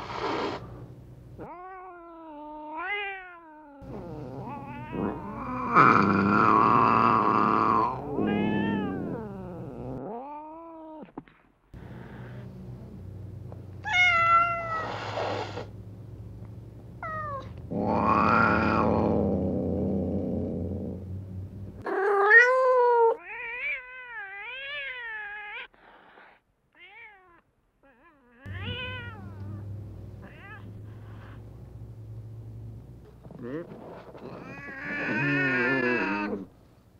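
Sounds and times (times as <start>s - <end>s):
cats meowing and yowling: 1.4s - 11.1s, 13.8s - 15.6s, 17.0s - 19.2s, 21.8s - 25.8s, 26.8s - 29.6s, 30.2s - 31.4s, 34.2s - 36.5s.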